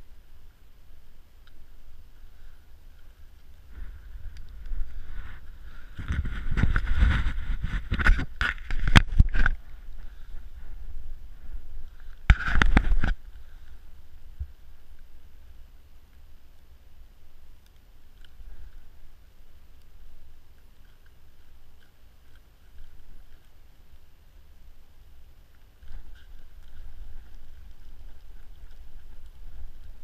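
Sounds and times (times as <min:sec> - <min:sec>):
clothing rustling on microphone: 0:01.6 - 0:15.1, 0:25.8 - 0:30.0.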